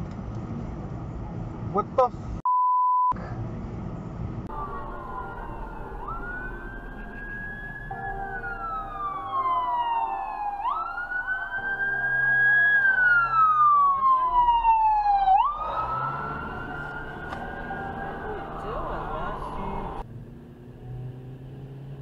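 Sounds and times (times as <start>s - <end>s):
emergency vehicle siren wailing: 4.5s - 20.0s.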